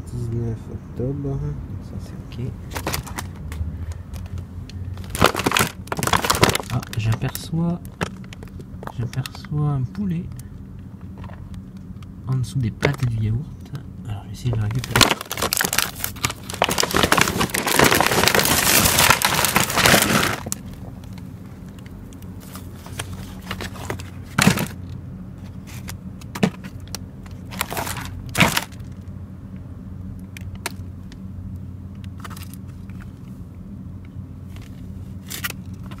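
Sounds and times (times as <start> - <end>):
plastic packaging crinkling: 4.2 - 9.4, 14.6 - 24.8, 25.6 - 29.0
packages knocking: 5.0 - 7.4, 14.5 - 20.6, 23.5 - 24.8.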